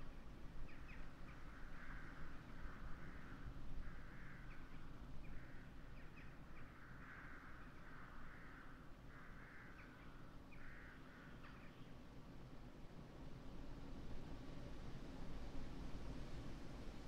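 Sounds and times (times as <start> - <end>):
low wind rumble: 0.0 - 17.0
crows cawing: 6.9 - 9.8, 10.6 - 11.4.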